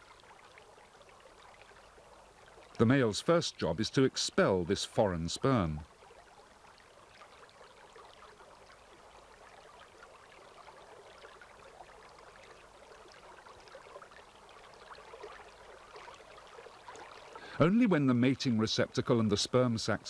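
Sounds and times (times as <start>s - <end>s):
liquid trickling and bubbling: 0.0s - 20.0s.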